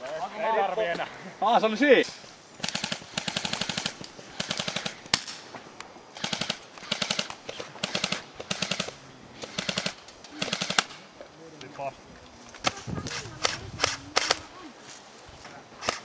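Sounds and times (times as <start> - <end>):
airsoft rifle bursts: 2.6 - 5.4, 6.1 - 11.0.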